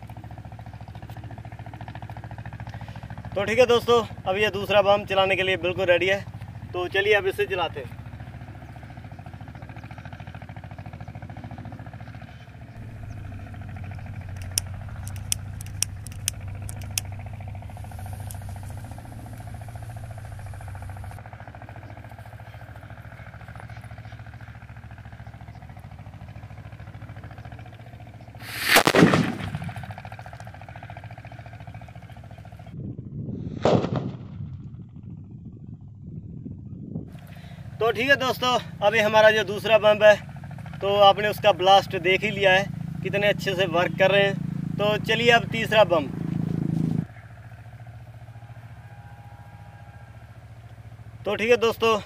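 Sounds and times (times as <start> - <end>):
firecracker bang: 28.4 - 30.0, 33.5 - 34.4.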